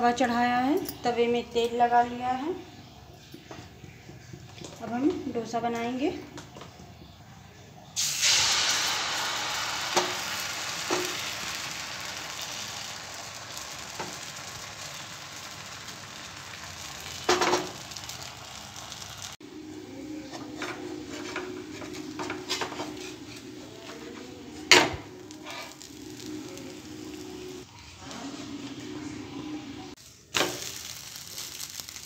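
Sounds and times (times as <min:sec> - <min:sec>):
batter sizzling on hot pan: 0:08.0 - 0:28.2, 0:29.9 - 0:32.0.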